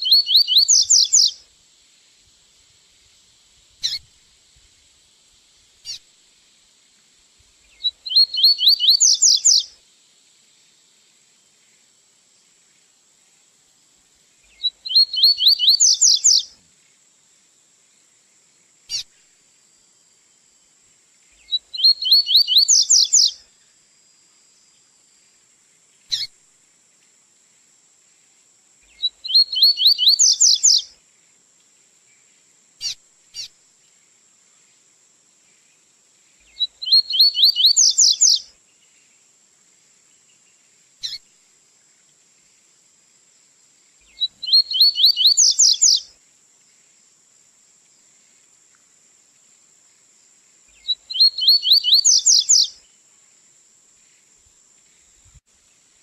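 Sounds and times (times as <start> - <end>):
faint high hiss: 0.0 - 56.0.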